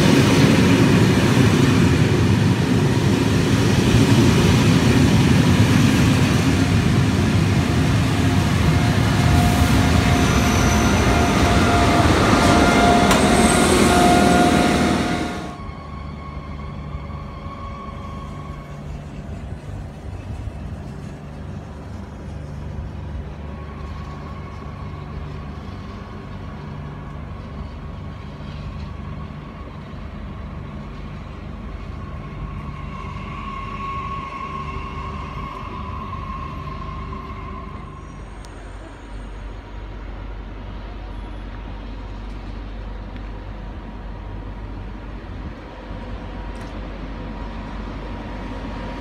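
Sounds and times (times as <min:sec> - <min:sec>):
train high whine: 0:00.0 - 0:49.0
train low rumble: 0:00.0 - 0:49.0.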